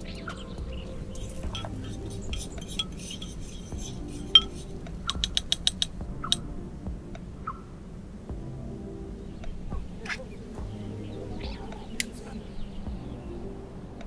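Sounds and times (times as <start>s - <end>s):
metal spoon clinking on pot: 1.2s - 5.9s.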